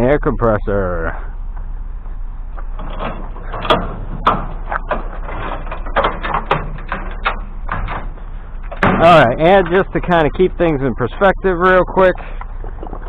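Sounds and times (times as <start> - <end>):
steady low hum: 0.0 - 13.0
scrap metal clanking and rattling: 2.6 - 10.7.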